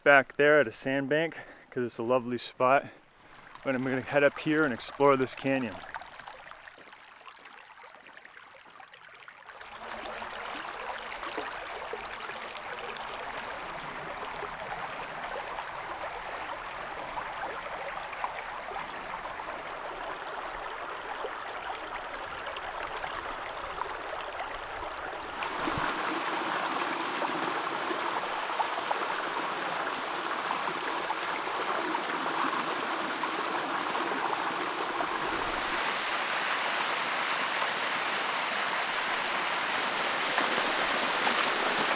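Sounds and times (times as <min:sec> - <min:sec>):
running water rushing: 0:03.0 - 0:41.9.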